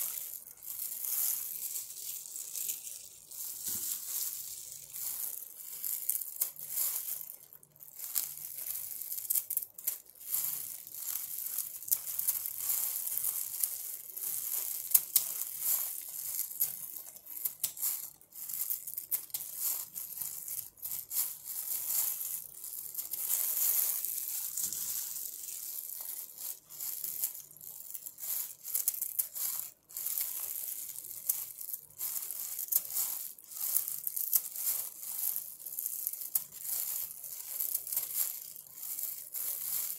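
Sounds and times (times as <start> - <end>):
leaves rustling: 0.8 - 6.9.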